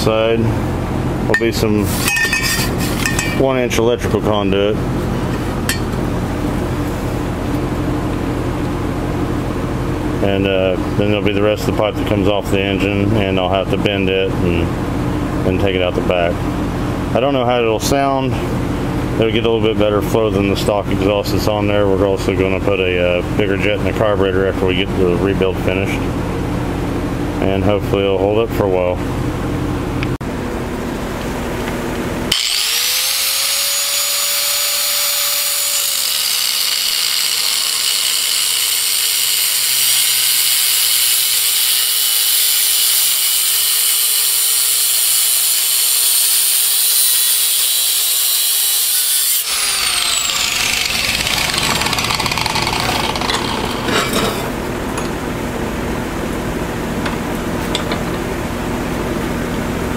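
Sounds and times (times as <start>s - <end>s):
angle grinder cutting metal pipe: 1.4s - 3.4s, 32.3s - 54.6s.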